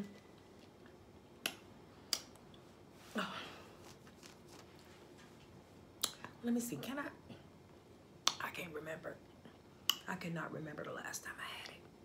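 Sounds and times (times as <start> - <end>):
lip smack: 1.4 - 2.5.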